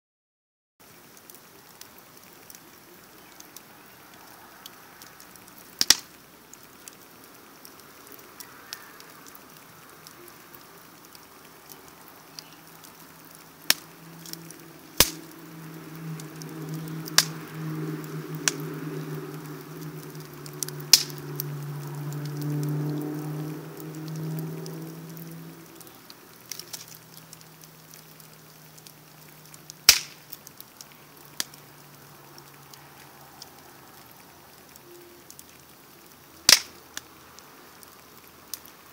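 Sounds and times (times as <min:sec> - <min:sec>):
wood fire crackling: 0:00.8 - 0:38.9
sharp pops from fire: 0:03.4 - 0:09.4, 0:10.0 - 0:31.7, 0:36.3 - 0:37.1.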